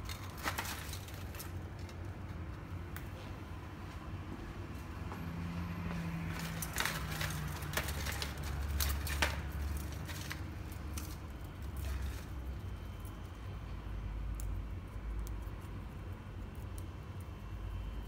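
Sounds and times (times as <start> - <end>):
plastic parts clicking and rustling: 0.0 - 2.6, 6.3 - 12.4
low steady hum: 0.0 - 18.0.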